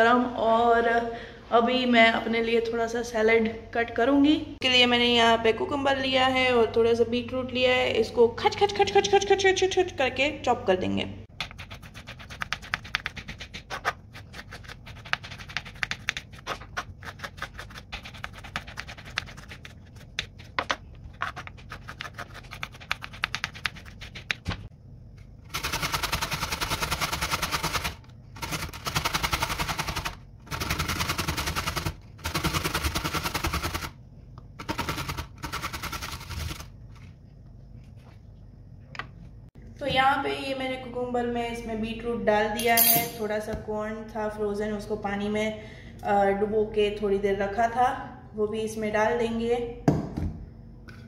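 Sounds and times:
grating on metal grater: 0:11.4 - 0:20.5, 0:21.2 - 0:24.3, 0:25.5 - 0:33.9, 0:34.6 - 0:36.7.

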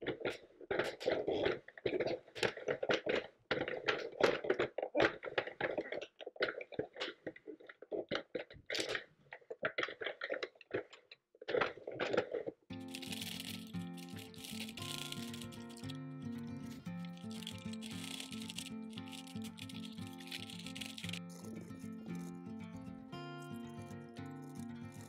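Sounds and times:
knitting machine needles clattering: 0:12.0 - 0:25.0.

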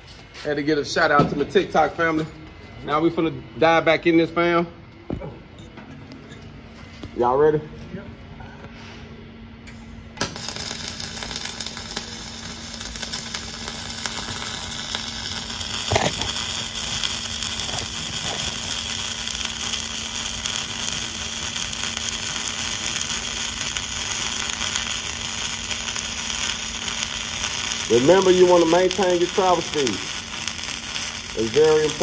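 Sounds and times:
arc welding crackling and hissing: 0:00.0 - 0:04.6, 0:10.2 - 0:32.0
welding arc pop: 0:09.6 - 0:32.0.

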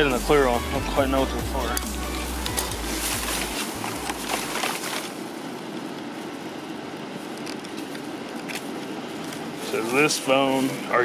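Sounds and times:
background hum: 0:00.0 - 0:11.0
plastic bag rustling: 0:02.4 - 0:06.3.

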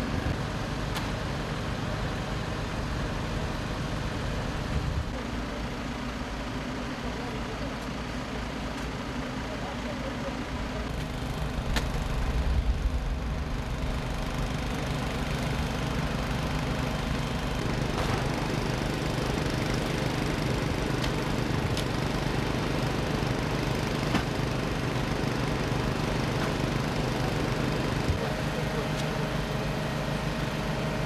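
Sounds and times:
motor engine droning: 0:10.6 - 0:31.0.

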